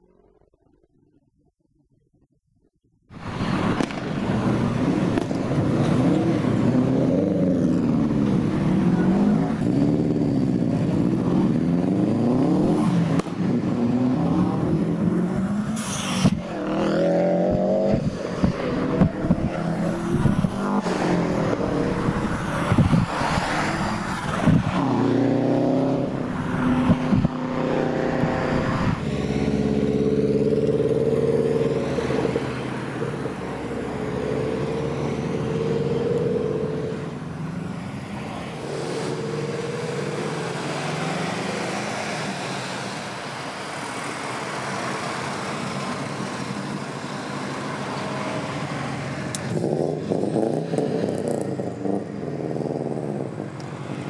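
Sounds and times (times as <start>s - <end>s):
car engines revving: 3.1s - 54.0s.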